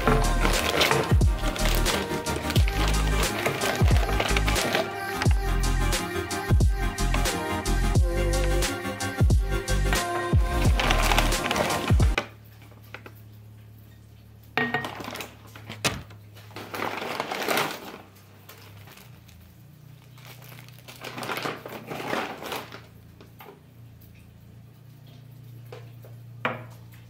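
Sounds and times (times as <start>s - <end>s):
objects knocking: 0.0s - 5.3s
paper bags rustling: 0.0s - 5.6s, 9.9s - 12.2s, 14.8s - 23.2s.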